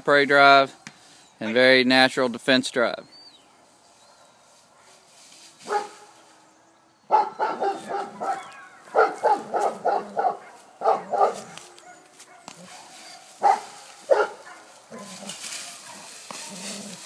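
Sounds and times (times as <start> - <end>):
dog barking: 5.7 - 6.1, 7.1 - 15.2, 15.8 - 16.1.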